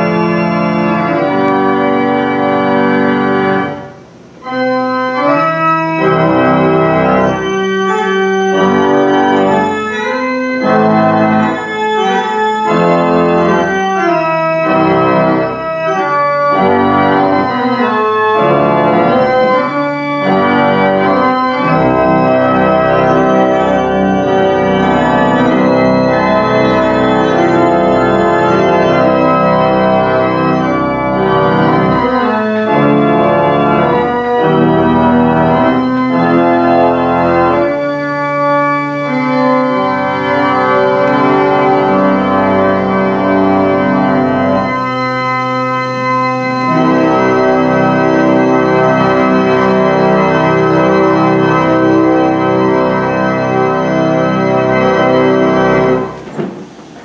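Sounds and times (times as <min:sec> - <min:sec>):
pipe organ playing chords: 0:00.0 - 0:57.0.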